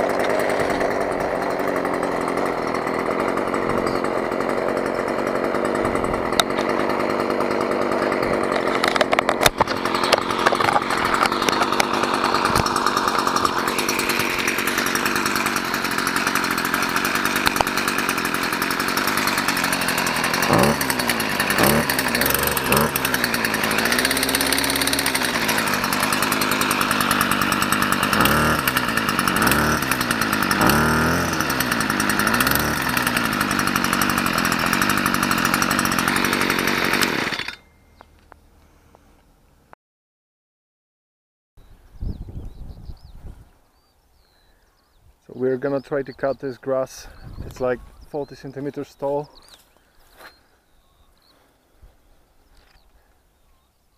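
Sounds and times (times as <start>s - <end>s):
brush cutter engine buzzing: 0.0s - 39.3s.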